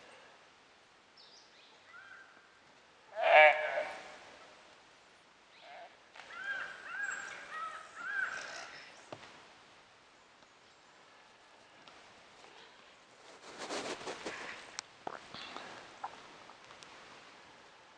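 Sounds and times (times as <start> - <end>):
calf distress bleat: 3.1 - 4.1.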